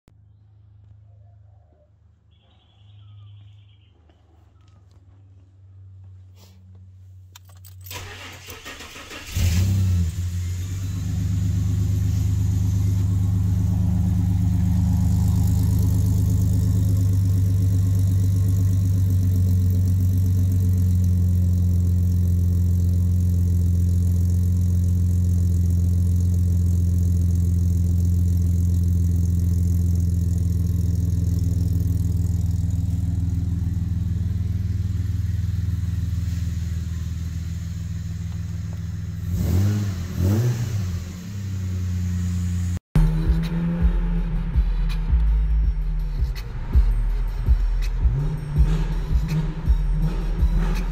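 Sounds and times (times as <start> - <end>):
car engine starting and idling: 5.9 - 50.9
engine cranking: 7.4 - 10.3.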